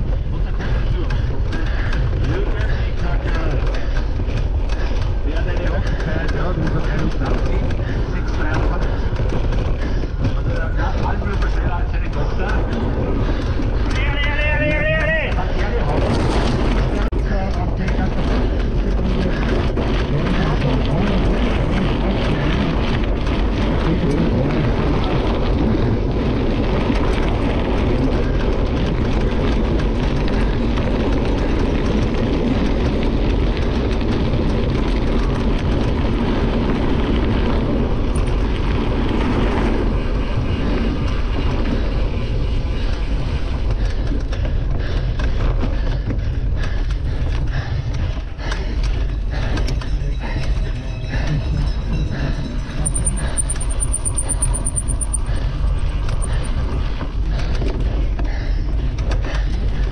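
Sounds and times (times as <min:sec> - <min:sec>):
bike tyres crunching over gravel: 0:00.0 - 0:46.4
wind rumbling on microphone: 0:00.0 - 0:59.9.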